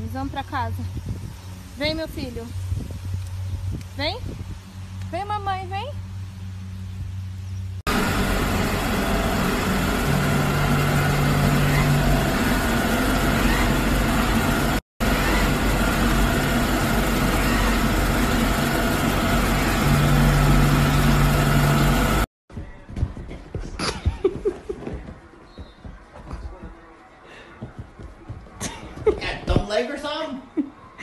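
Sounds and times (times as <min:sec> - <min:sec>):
low hum: 0:00.0 - 0:22.3.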